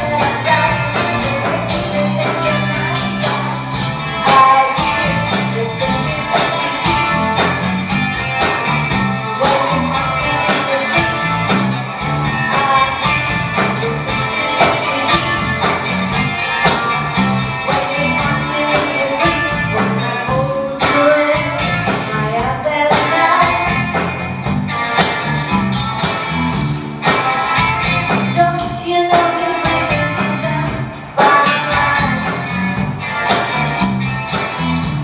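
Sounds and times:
drum kit beat: 0.0s - 35.0s
live rock band playing: 0.0s - 35.0s.

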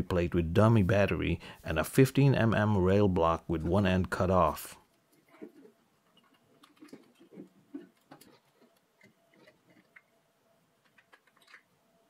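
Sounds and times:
metal parts clicking and knocking: 10.8s - 11.7s.

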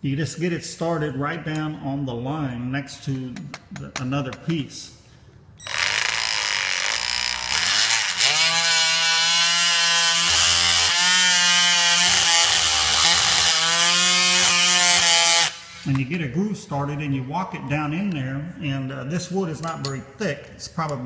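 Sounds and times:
oscillating multi-tool cutting wood: 5.6s - 15.9s.

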